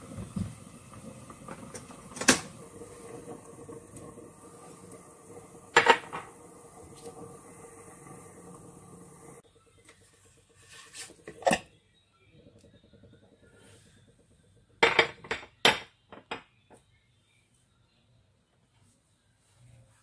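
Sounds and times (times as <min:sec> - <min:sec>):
glass bowl clinking: 0:05.7 - 0:06.3.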